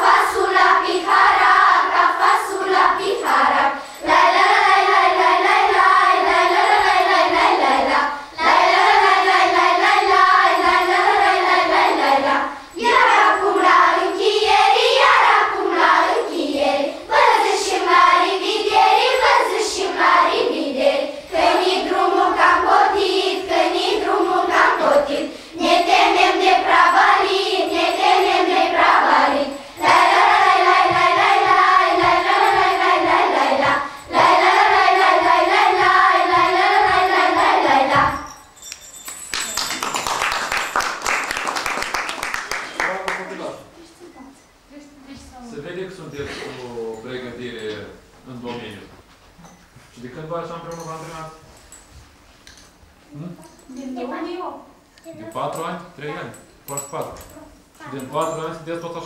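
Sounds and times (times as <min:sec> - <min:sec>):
children's choir singing a carol: 0:00.0 - 0:38.5.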